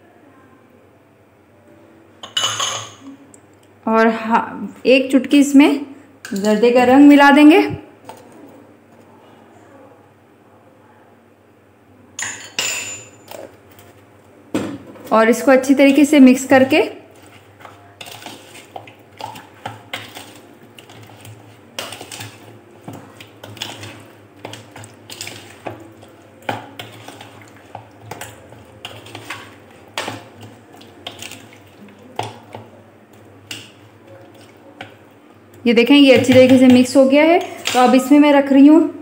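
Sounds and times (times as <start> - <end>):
spoon clinking and scraping glass bowl: 2.2 - 3.0, 12.2 - 13.5.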